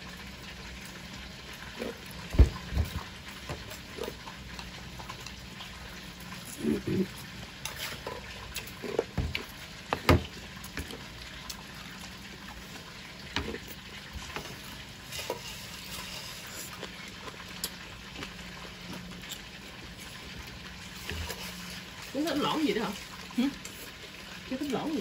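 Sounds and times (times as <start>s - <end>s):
slurping noodles: 14.5s - 17.4s.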